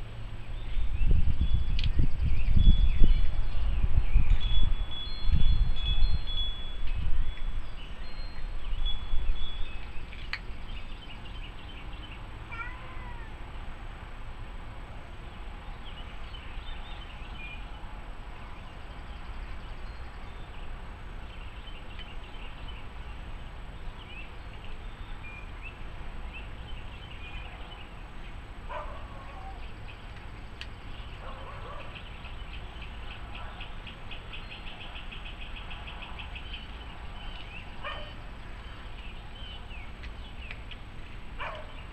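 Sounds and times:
wind gust on microphone: 0.6s - 10.6s
cat meowing: 12.5s - 13.4s.

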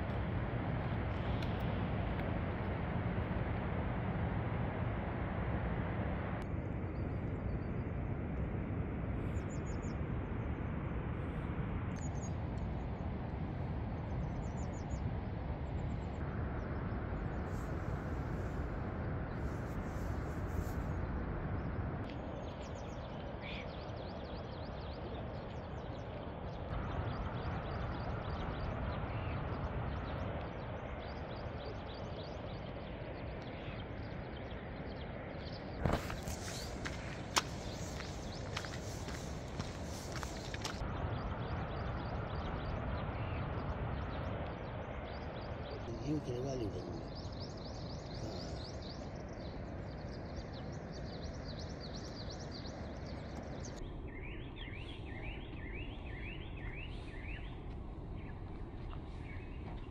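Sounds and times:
steady rushing noise: 0.0s - 53.9s
small birds chirping: 21.6s - 59.9s.

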